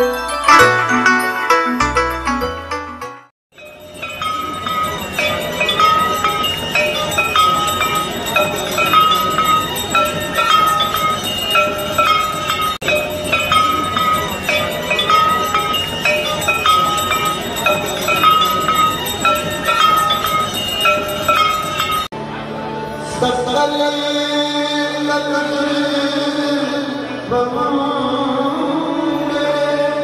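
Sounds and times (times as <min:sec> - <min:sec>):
bells ringing rhythmically: 0:00.0 - 0:22.2
continuous background din: 0:03.6 - 0:30.0.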